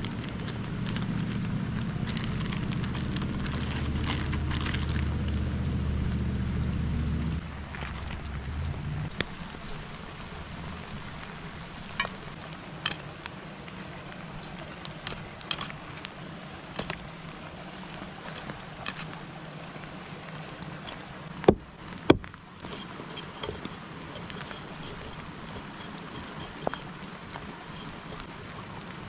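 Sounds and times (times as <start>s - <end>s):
river water rushing: 7.4s - 29.0s.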